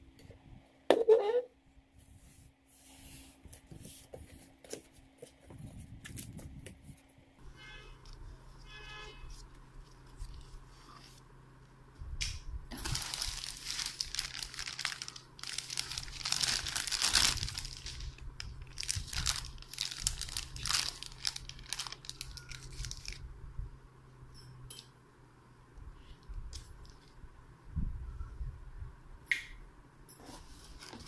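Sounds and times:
plastic packaging crinkling: 0:12.7 - 0:23.2.

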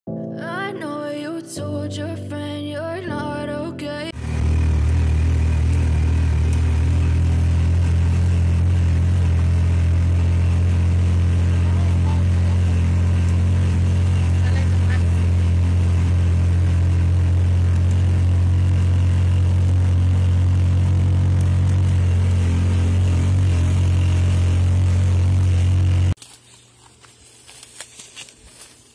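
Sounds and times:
auto rickshaw engine droning: 0:04.1 - 0:26.2.

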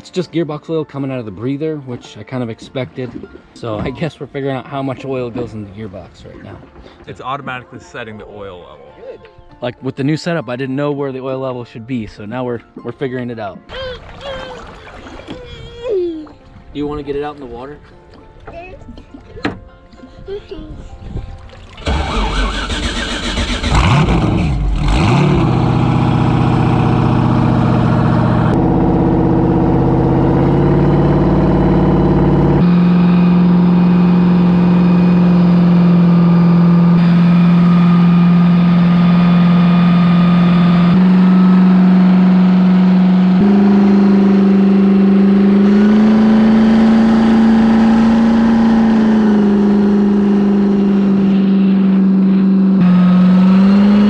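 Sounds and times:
jet ski engine revving: 0:21.8 - 0:54.0.

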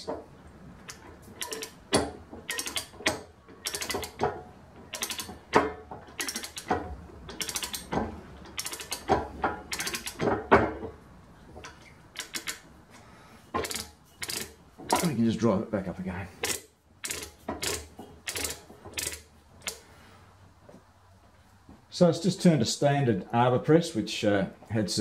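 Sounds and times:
ratchet pawl clicking: 0:00.9 - 0:04.2, 0:04.9 - 0:09.1, 0:09.7 - 0:10.3, 0:12.1 - 0:12.6, 0:13.6 - 0:15.1, 0:16.4 - 0:19.8.

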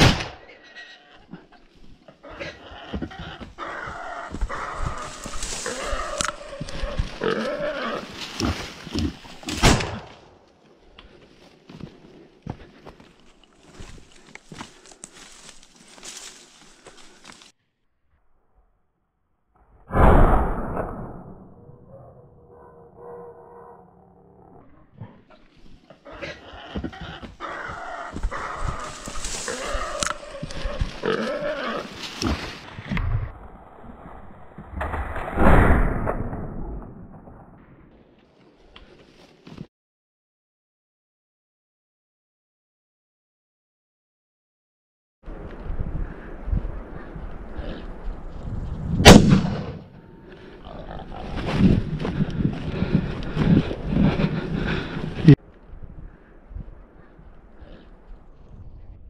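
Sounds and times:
hunting dogs baying: 0:02.0 - 0:07.8, 0:22.4 - 0:31.8
footsteps: 0:02.9 - 0:07.4, 0:10.4 - 0:17.5, 0:26.7 - 0:32.7
undergrowth crackling and rustling: 0:04.3 - 0:09.6, 0:13.0 - 0:17.5, 0:27.6 - 0:32.8
dogs baying: 0:26.0 - 0:31.0
loud sharp crack: 0:49.0 - 0:49.8.

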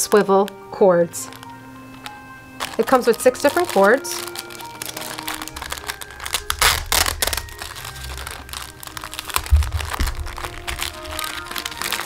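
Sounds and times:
plastic bags crinkling: 0:00.0 - 0:12.0
dull bump: 0:09.3 - 0:11.4.

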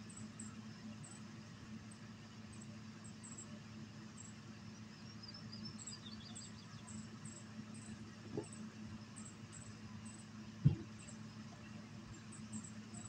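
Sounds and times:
bird chirps: 0:05.2 - 0:07.0.

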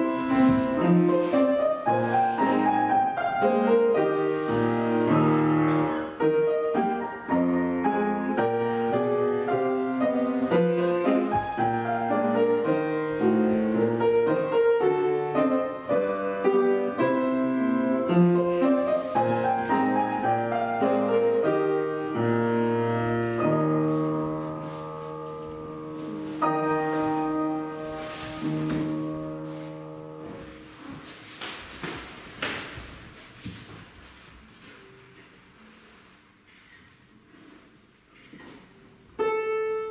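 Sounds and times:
classical piano accompaniment: 0:00.0 - 0:39.9.

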